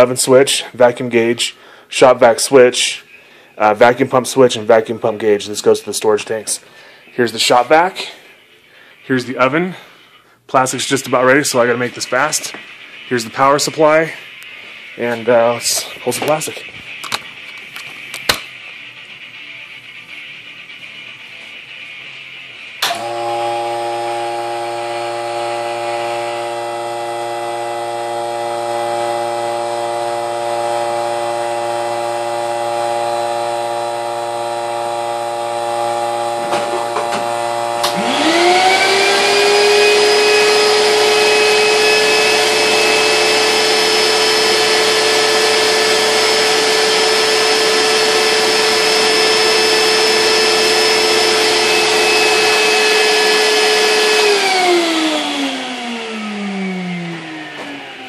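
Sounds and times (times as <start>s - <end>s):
shop vac whining: 0.0s - 58.0s
machine hum: 9.8s - 58.0s.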